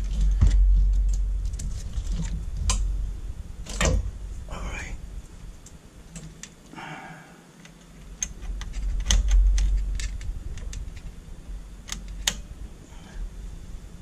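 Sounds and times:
clip test leads clicking and rattling: 7.6 - 11.2.

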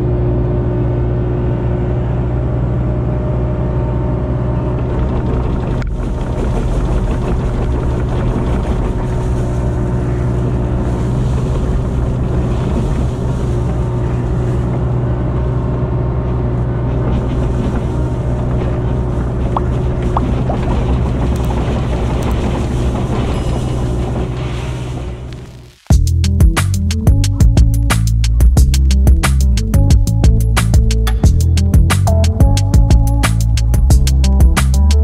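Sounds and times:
excavator diesel engine running: 0.0 - 35.0.

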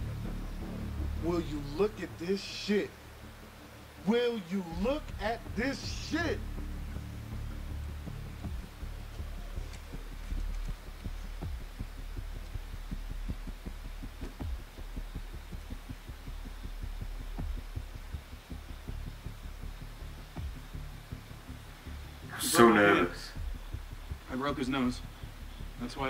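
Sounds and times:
low throbbing rumble: 0.0 - 2.2, 4.8 - 26.0
steady hum: 0.0 - 26.0.

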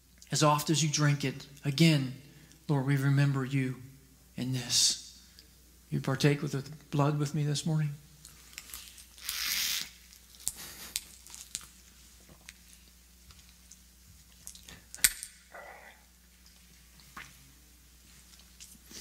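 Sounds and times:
person sipping: 14.5 - 16.2.

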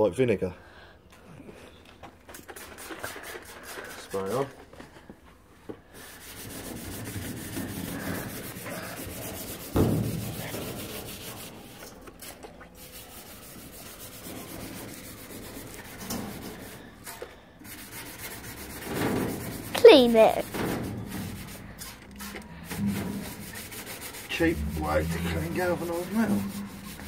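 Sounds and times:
sponge scrubbing metal: 6.0 - 27.0
thump: 9.7 - 10.5.

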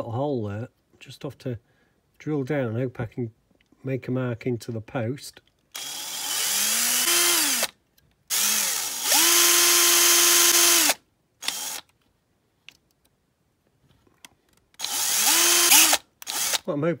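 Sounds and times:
electric drill whine: 5.8 - 7.7, 8.3 - 11.8, 14.8 - 16.6.

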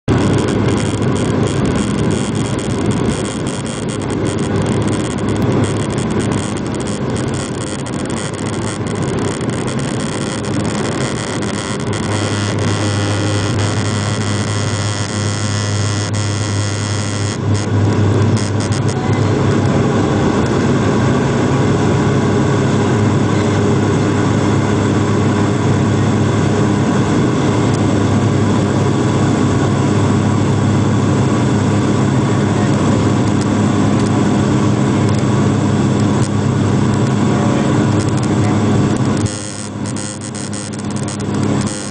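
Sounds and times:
jet engines at takeoff power: 0.0 - 41.9
wheels rumbling on runway: 0.0 - 41.9.

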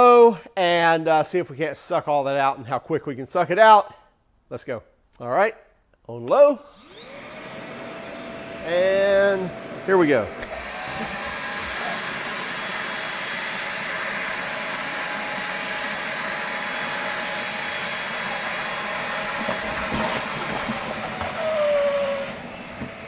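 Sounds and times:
vacuum motor winding down: 6.7 - 23.0
wet vacuum sucking water: 6.9 - 23.0.

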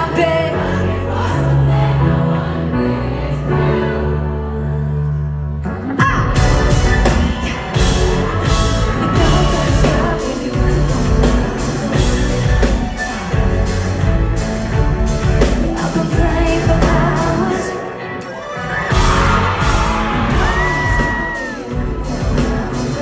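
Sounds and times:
live pop-rock band: 0.0 - 2.6, 3.6 - 23.0
person singing: 3.8 - 14.0, 15.2 - 23.0.

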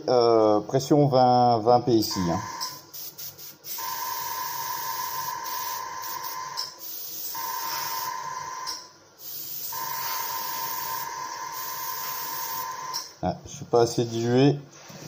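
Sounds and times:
airbrush hissing with whistle: 2.3 - 13.0.

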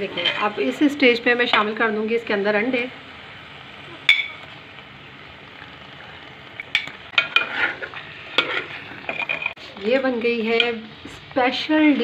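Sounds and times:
low sizzle from pot: 0.0 - 12.0
metal ladle clinking on pot: 4.1 - 4.5.

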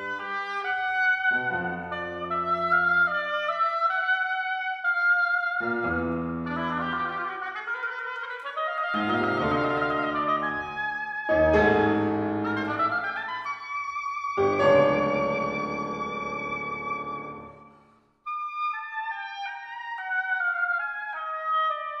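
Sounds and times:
oboe playing: 0.0 - 22.0
piano chords: 9.0 - 10.7, 11.3 - 13.2, 14.4 - 17.8.

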